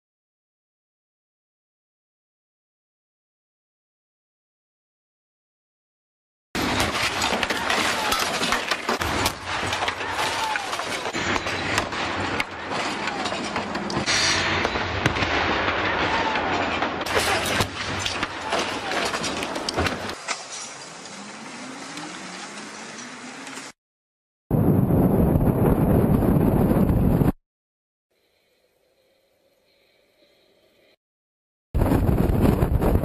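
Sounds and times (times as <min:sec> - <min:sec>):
cars crashing into barriers: 0:06.6 - 0:21.0.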